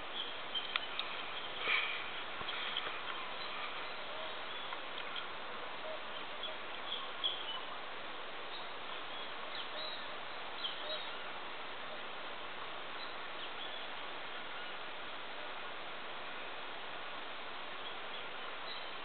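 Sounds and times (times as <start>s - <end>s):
faint bird chirps: 0.0s - 7.9s, 8.5s - 11.3s
steady outdoor hiss: 0.0s - 19.0s.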